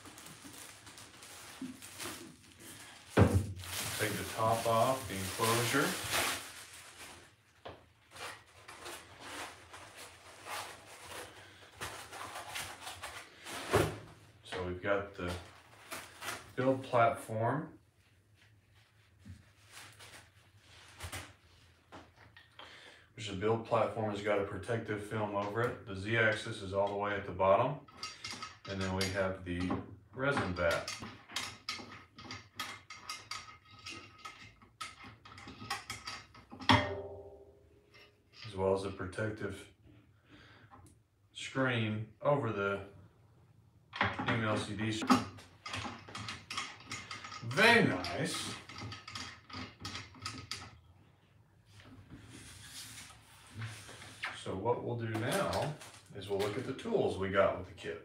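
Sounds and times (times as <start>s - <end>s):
plastic cover rustling and scraping: 0.0s - 14.2s, 15.2s - 16.8s, 18.3s - 21.9s, 51.7s - 54.5s, 55.1s - 56.8s.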